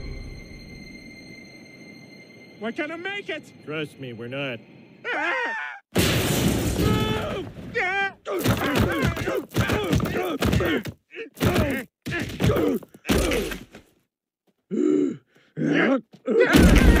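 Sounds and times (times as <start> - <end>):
cartoon men groaning in pain: 6.8 - 13.6, 14.7 - 17.0
thuds bouncing down rocks: 8.4 - 13.9.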